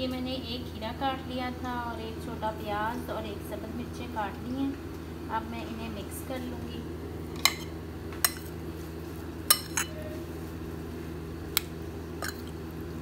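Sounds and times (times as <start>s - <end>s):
metal spoon clinking on a plate: 7.4s - 8.5s, 9.5s - 10.0s, 11.6s - 12.5s.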